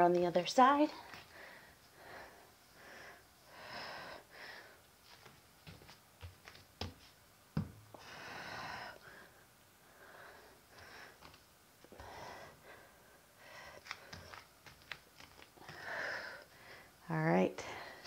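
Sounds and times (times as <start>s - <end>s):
person breathing: 1.0s - 4.9s, 7.9s - 14.5s, 15.6s - 17.0s
soft knocks on exercise mat: 7.6s - 7.9s.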